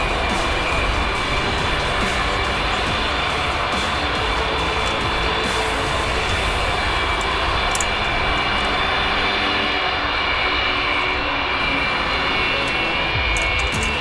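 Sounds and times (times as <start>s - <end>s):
high engine whine: 0.0s - 14.0s
jet engines running: 0.0s - 14.0s.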